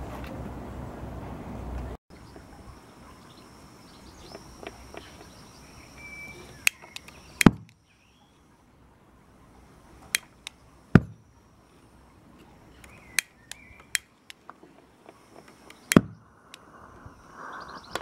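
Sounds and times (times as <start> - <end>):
thin steady high tone: 2.1 - 18.0.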